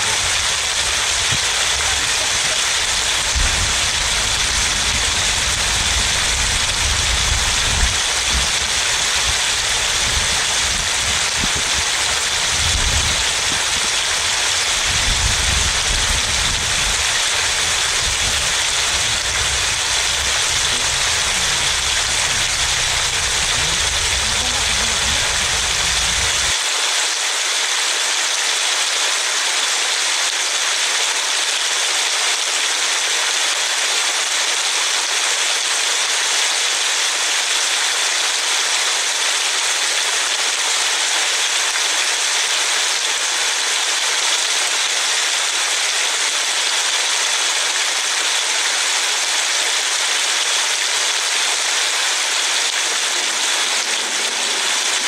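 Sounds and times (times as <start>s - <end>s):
low rumble: 0.0s - 11.9s, 12.5s - 26.6s
steady rain falling: 0.0s - 55.0s.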